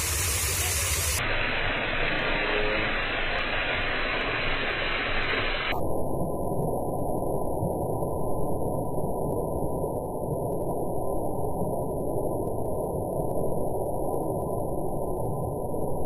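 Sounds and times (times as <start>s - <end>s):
waterfall splashing into pool: 0.0s - 5.8s.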